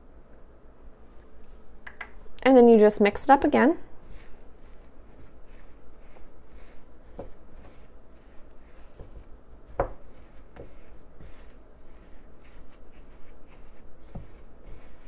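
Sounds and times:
spatula scraping in ceramic bowl: 0:04.0 - 0:15.0
spatula knocking on bowl: 0:08.8 - 0:11.5.

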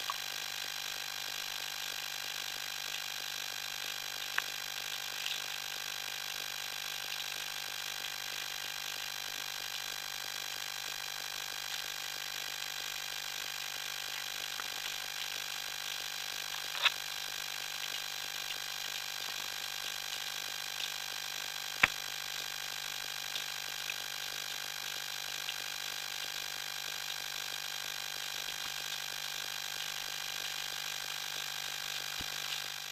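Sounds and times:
sharp snap: 0:21.8 - 0:22.0.

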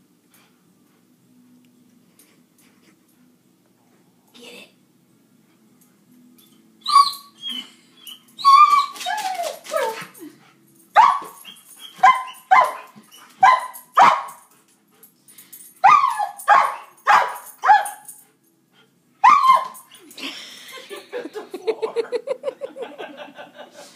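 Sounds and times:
dog whining and yelping: 0:06.8 - 0:10.3, 0:11.0 - 0:13.8, 0:15.8 - 0:16.8, 0:19.2 - 0:20.2
dog barking sharply: 0:12.0 - 0:14.4, 0:16.5 - 0:17.9.

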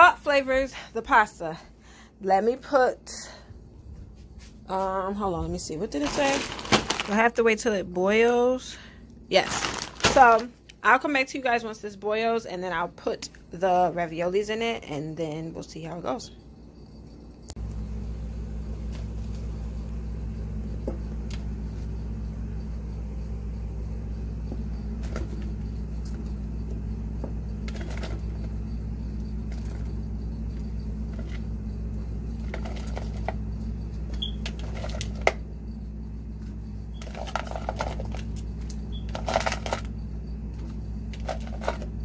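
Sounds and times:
pot boiling rumble: 0:17.7 - 0:42.0.

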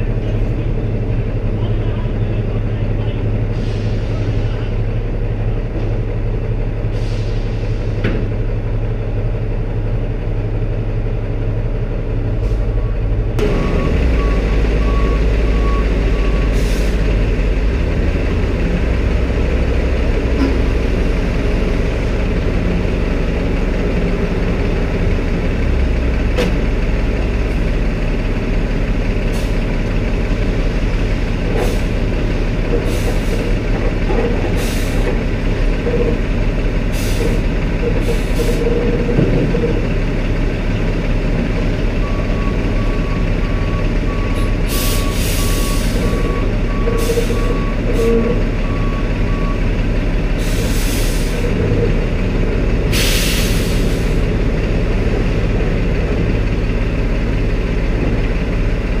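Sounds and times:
diesel machinery rumble: 0:00.0 - 0:59.0
reversing alarm beeping: 0:12.8 - 0:16.7, 0:42.0 - 0:49.7.

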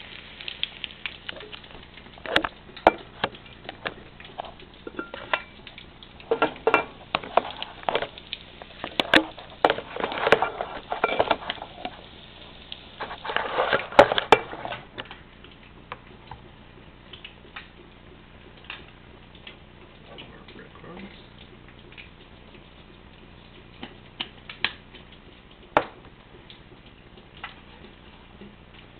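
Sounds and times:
frying pan and utensils clattering: 0:04.3 - 0:05.6, 0:06.2 - 0:08.1, 0:09.0 - 0:11.8, 0:13.0 - 0:15.0.

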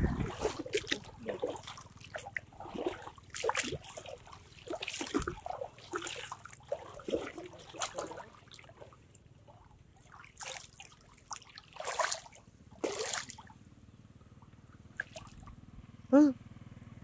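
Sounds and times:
water trickling and splashing: 0:00.0 - 0:13.7, 0:14.3 - 0:15.6.

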